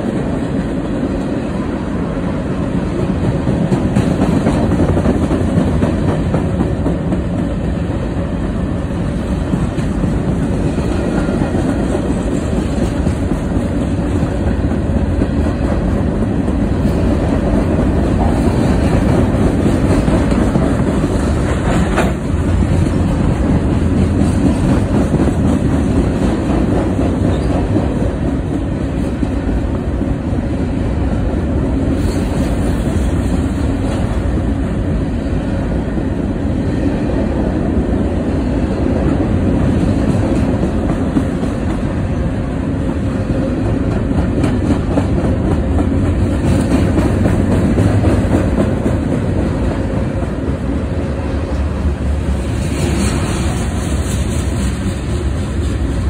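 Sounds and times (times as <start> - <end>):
train wheels rumbling on rail: 0.0 - 56.0
wheels clickety-clack: 2.9 - 7.7, 9.2 - 30.1, 39.0 - 42.0, 42.8 - 50.6.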